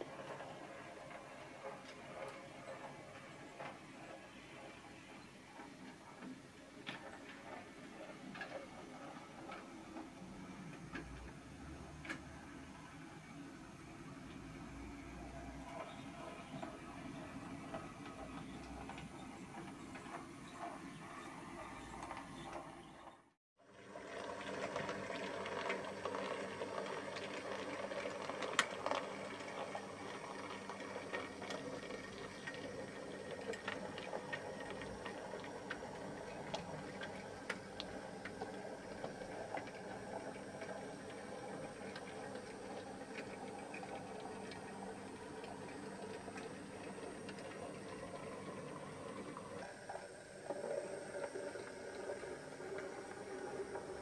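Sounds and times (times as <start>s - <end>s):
wheels clicking on rails: 0.0s - 54.0s.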